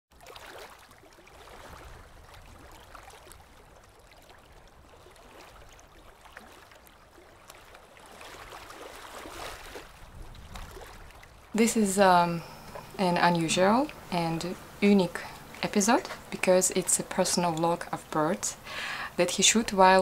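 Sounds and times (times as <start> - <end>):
gentle water washes: 0.1 - 20.0.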